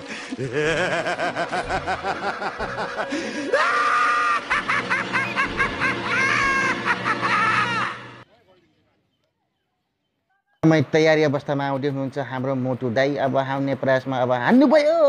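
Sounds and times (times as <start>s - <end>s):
crowd laughing: 0.0s - 8.2s
people shrieking and shouting: 1.0s - 8.2s.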